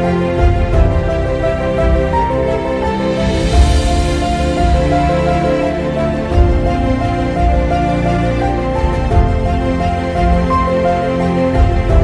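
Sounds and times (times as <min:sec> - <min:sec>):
background music with held notes: 0:00.0 - 0:12.0.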